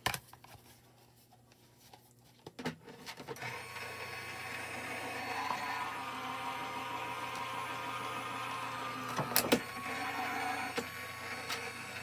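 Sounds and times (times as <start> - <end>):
die-cutting machine motor running: 3.4 - 12.0.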